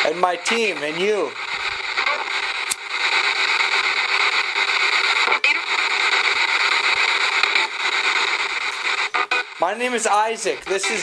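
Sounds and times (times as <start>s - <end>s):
radio static hiss: 0.0s - 11.0s
short clicks: 2.7s - 2.9s.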